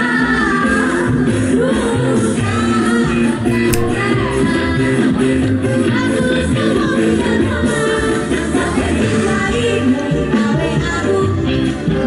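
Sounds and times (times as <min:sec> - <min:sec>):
distant live band with singing: 0:00.0 - 0:12.0.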